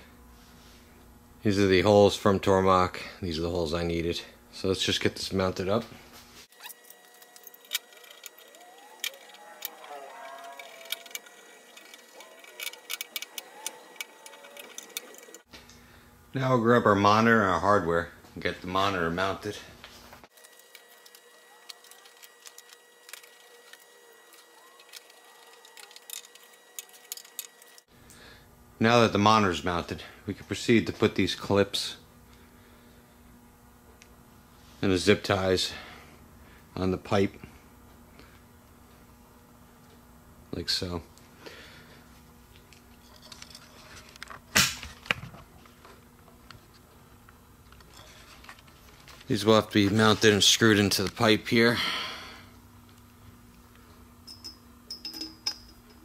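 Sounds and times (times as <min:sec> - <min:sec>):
low steady hum: 0:00.0 - 0:56.0
faint steady high tone: 0:06.6 - 0:15.5, 0:21.0 - 0:27.9.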